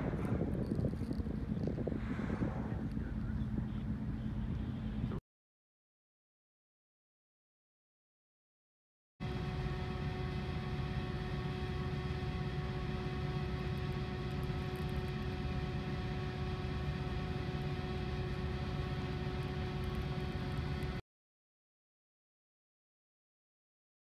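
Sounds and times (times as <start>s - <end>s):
boat engine humming: 0.0s - 5.2s, 9.2s - 21.0s.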